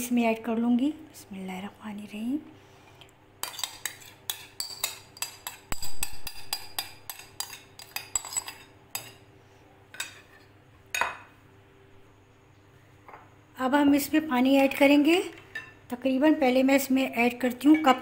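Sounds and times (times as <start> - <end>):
metal spoon scraping glass bowl: 3.4 - 9.1.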